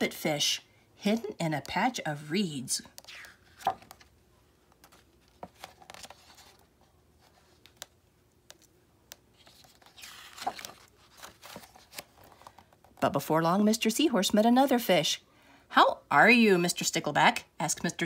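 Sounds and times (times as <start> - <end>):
book pages turning: 2.8 - 4.1, 4.7 - 13.0
paper rustle: 4.7 - 7.9, 9.3 - 12.7.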